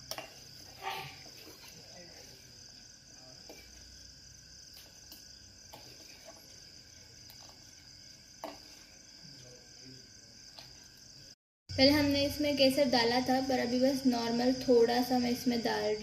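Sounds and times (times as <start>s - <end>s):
cricket trilling: 0.0s - 16.0s
ladle stirring and scraping pot: 5.7s - 9.0s.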